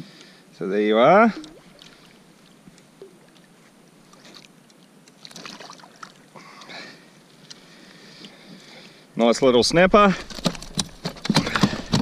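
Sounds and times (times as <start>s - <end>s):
water splashing and dripping: 1.2s - 6.8s.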